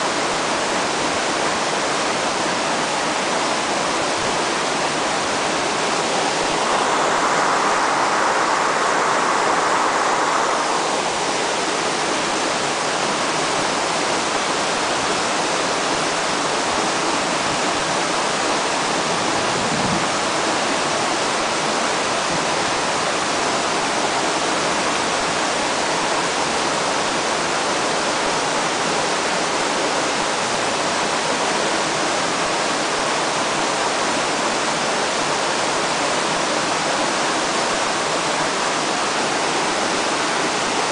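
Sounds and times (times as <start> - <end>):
river current rushing: 0.0 - 40.9.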